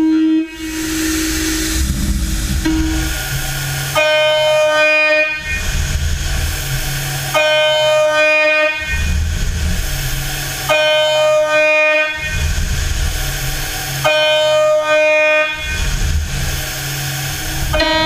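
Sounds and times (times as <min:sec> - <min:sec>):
low rumble: 0:00.4 - 0:08.2
milling machine spindle whine: 0:00.5 - 0:08.1, 0:15.9 - 0:18.0.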